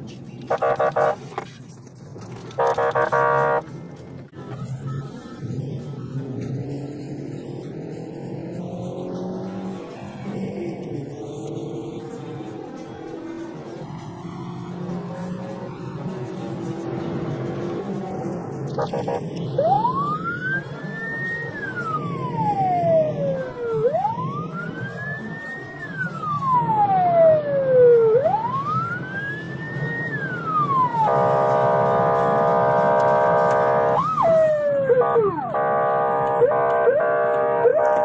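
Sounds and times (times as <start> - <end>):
horn-like siren blare: 0.5 - 1.2, 2.6 - 3.7, 18.7 - 38.0
siren wailing: 0.5 - 1.2, 2.6 - 3.6, 18.7 - 38.0
siren yelp: 0.5 - 1.2, 2.6 - 3.6, 18.7 - 38.0.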